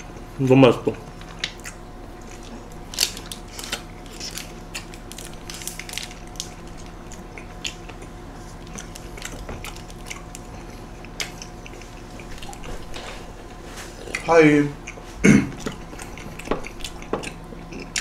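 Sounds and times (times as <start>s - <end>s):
steady low hum: 0.0s - 18.0s
close chewing and mouth smacks: 1.2s - 18.0s.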